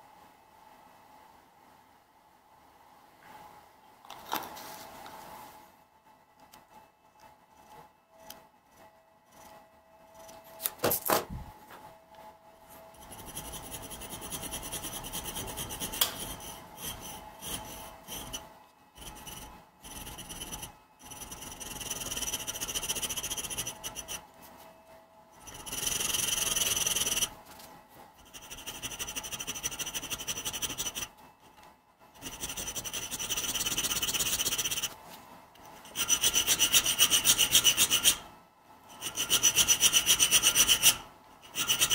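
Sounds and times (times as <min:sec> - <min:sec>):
hand file scraping steel: 0:12.9 - 0:24.2, 0:25.4 - 0:27.3, 0:28.2 - 0:31.1, 0:32.2 - 0:35.0, 0:35.8 - 0:38.2, 0:38.9 - 0:41.9.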